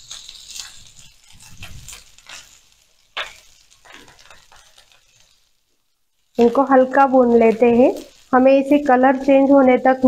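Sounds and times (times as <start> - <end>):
spatula scraping frying pan: 0.0 - 5.6
onions sizzling in oil: 0.0 - 10.0.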